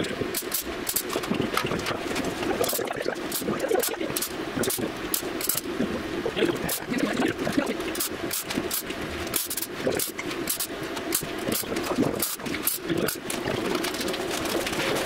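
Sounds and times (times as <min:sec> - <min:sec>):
welding arc crackling: 0:00.0 - 0:15.0.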